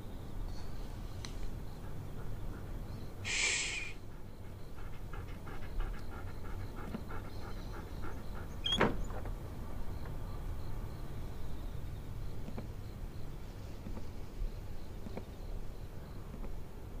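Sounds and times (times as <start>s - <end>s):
small animal panting: 0.6s - 9.2s
short hiss: 3.2s - 4.0s
sharp high squeak: 8.6s - 8.9s.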